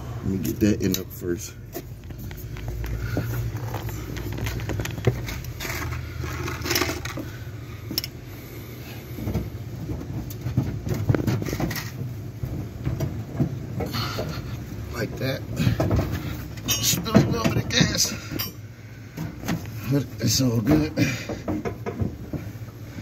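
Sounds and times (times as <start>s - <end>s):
knocks and clicks under truck: 9.2s - 18.6s, 20.6s - 22.6s.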